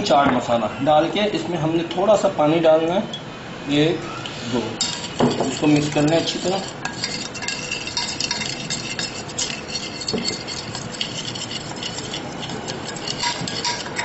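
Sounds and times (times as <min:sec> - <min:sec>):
utensil scraping glass dish: 0:04.8 - 0:14.0.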